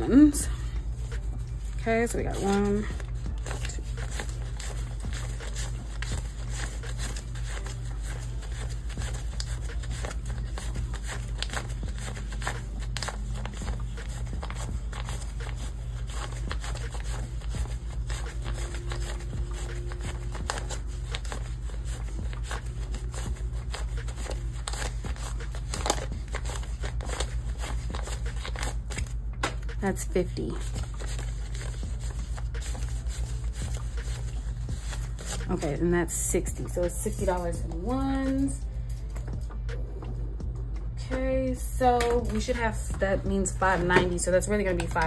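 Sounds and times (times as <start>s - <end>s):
paper bills rustling and flicking: 0.0s - 39.6s, 41.6s - 45.0s
steady low hum: 0.0s - 45.0s.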